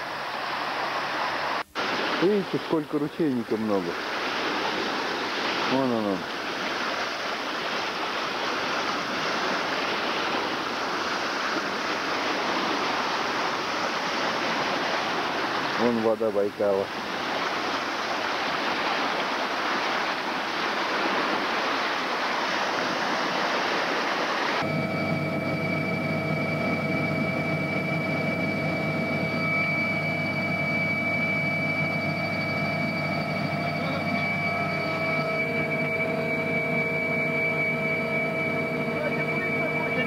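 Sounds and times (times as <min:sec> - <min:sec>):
water splashing against shore: 0:00.0 - 0:24.6
mechanical hum with high whine: 0:24.6 - 0:40.0.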